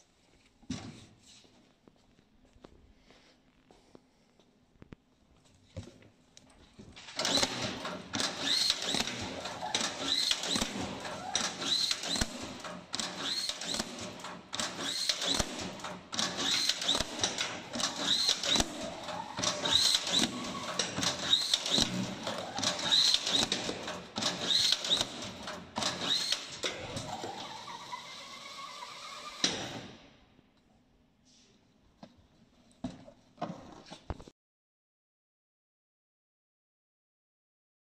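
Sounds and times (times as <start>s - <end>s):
strapping machine cycling: 7.2s - 29.4s.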